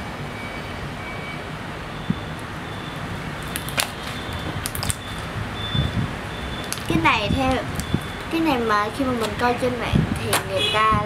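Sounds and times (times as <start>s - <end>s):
slime squished by hand: 3.4s - 5.2s.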